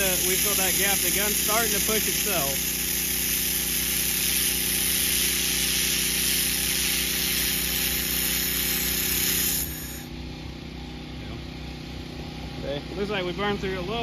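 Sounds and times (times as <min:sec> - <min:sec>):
welder hissing: 0:00.0 - 0:10.1
machine hum: 0:00.0 - 0:14.0.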